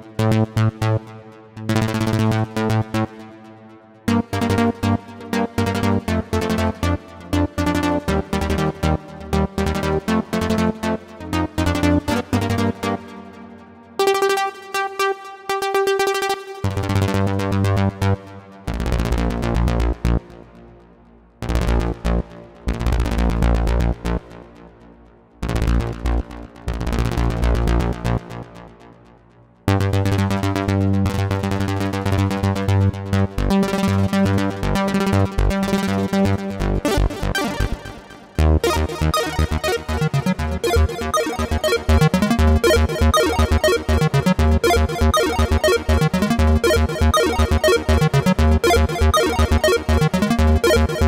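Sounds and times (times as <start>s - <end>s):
synthesizer arpeggio with stuttering notes: 35.2s - 51.0s
deep synth bass line: 36.7s - 51.0s.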